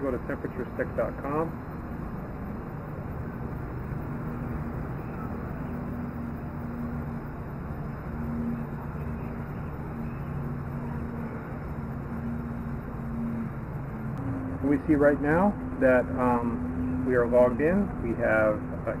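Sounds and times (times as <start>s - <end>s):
low mechanical hum: 0.0s - 19.0s
outdoor background noise: 0.0s - 19.0s.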